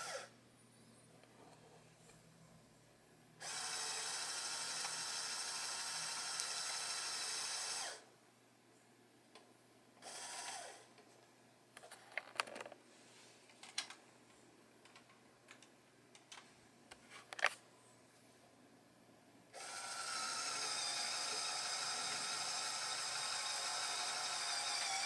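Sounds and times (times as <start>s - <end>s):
toy motor whirring: 0.0s - 0.3s, 3.4s - 8.0s, 10.0s - 10.8s, 19.6s - 25.0s.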